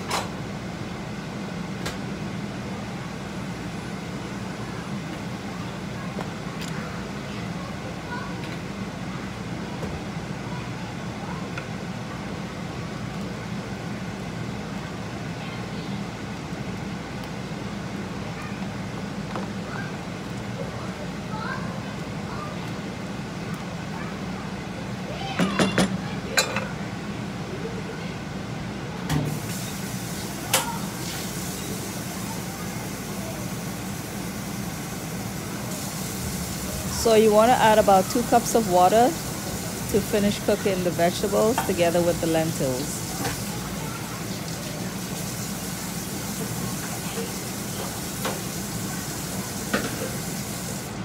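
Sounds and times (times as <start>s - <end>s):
pot boiling on gas stove: 0.0s - 51.0s.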